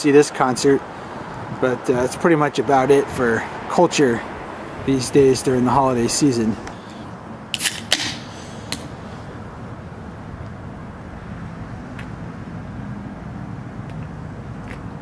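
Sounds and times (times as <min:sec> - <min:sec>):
faint engine hum: 0:00.8 - 0:15.0
low outdoor rumble: 0:08.1 - 0:15.0.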